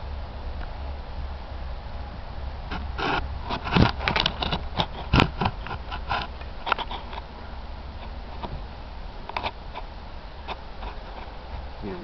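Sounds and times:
steady low rumble: 0.0s - 12.0s
hooves thudding on grass: 2.0s - 12.0s.

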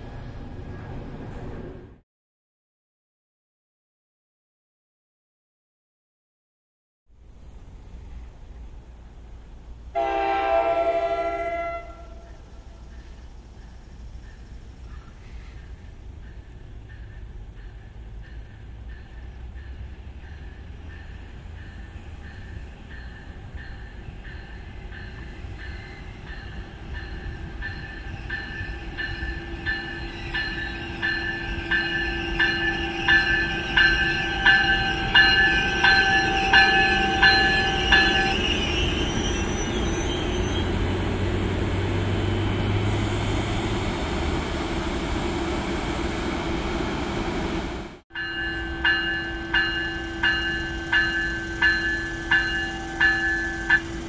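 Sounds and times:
train rumbling past: 0.0s - 2.0s, 7.1s - 54.0s
locomotive bell ringing: 16.2s - 40.8s, 48.1s - 54.0s.

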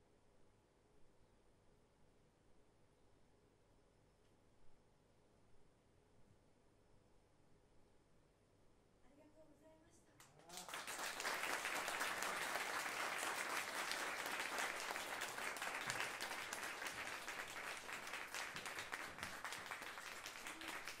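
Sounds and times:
audience applauding: 10.4s - 21.0s.

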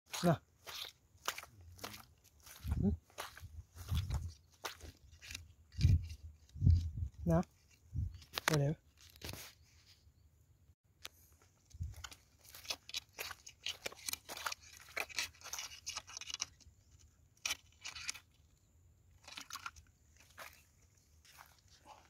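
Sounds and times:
metal rods scraping dry mud: 0.1s - 2.0s, 3.2s - 8.4s, 12.0s - 18.5s, 19.1s - 22.0s.

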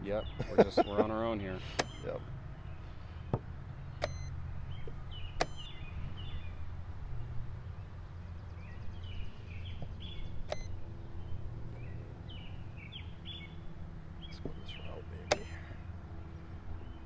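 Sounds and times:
small birds chirping: 0.0s - 17.0s
chess clock clicks: 1.8s - 2.1s, 4.0s - 4.3s, 5.4s - 5.7s, 10.4s - 10.7s, 15.3s - 15.6s.

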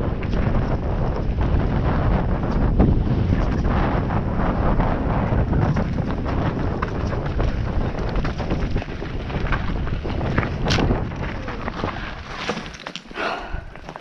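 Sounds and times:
bike knocking and rattling: 0.0s - 13.2s
wind rushing over microphone: 0.0s - 14.0s
tyres crunching on loose stones: 5.0s - 14.0s.

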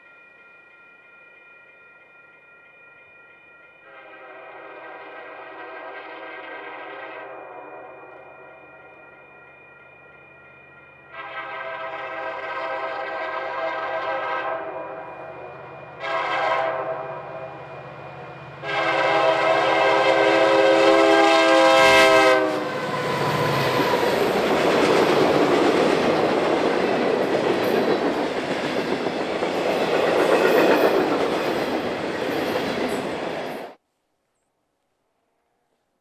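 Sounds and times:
steam locomotive chime whistle: 0.0s - 25.6s
train passing with loud rush: 0.0s - 33.8s.

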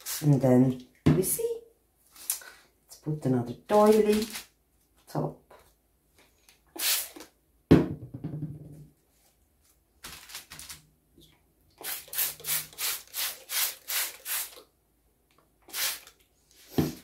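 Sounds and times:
spray bottle squirts: 6.8s - 7.3s, 11.8s - 14.6s, 15.7s - 16.2s
knock and handling noise: 7.7s - 9.0s, 16.7s - 17.0s.

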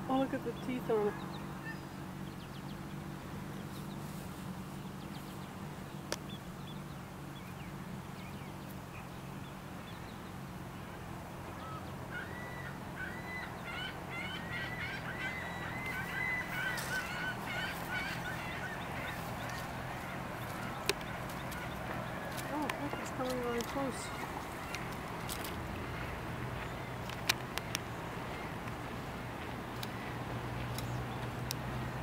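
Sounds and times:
steady low hum: 0.0s - 32.0s
short repeated bird calls: 11.5s - 28.6s.

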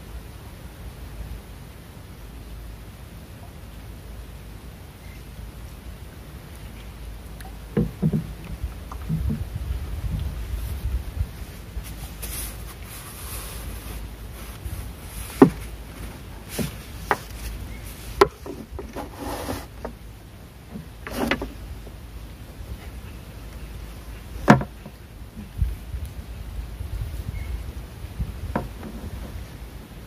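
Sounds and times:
low steady rumble: 0.0s - 30.0s
paddle knocking against wooden boat: 7.7s - 9.6s, 15.3s - 15.8s, 16.5s - 17.5s, 24.4s - 25.6s, 28.4s - 29.4s.

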